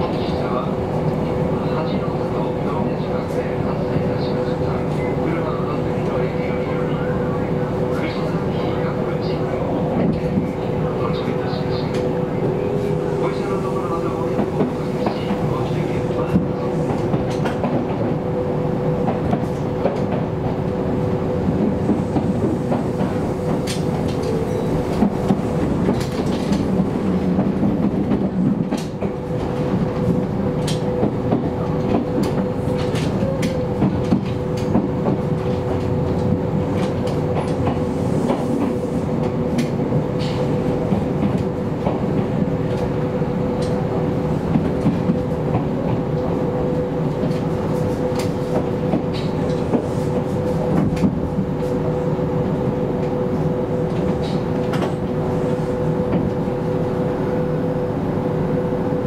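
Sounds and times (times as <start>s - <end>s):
train rumble: 0.0s - 59.0s.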